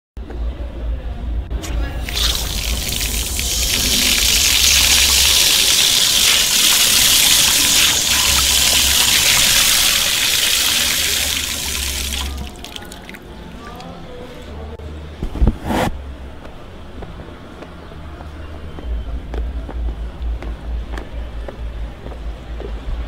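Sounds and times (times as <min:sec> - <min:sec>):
tap water splashing into basin: 0:02.0 - 0:13.2.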